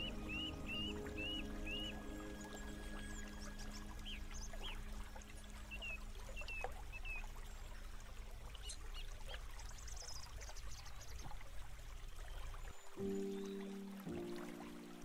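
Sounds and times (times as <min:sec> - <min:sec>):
bird chirps: 0:00.0 - 0:04.9
trickle of running water: 0:00.0 - 0:15.0.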